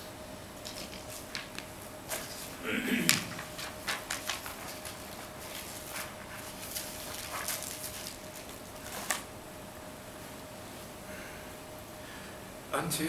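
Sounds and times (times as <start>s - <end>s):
faint steady hum: 0.0s - 13.0s
plastic sheets and paper rustling: 0.6s - 9.3s.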